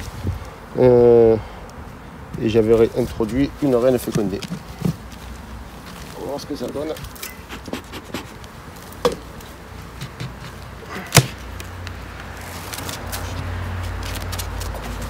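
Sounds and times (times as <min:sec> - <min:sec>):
honeybees buzzing: 0:04.5 - 0:12.2
wooden cover cracking: 0:10.0 - 0:11.8.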